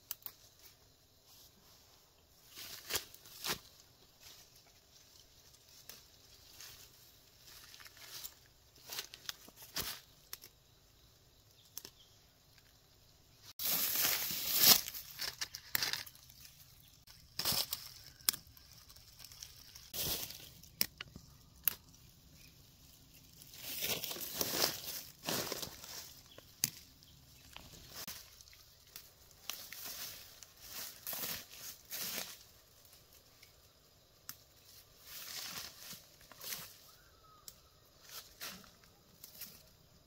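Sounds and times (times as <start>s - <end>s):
leaves rustling and tearing: 13.6s - 33.2s.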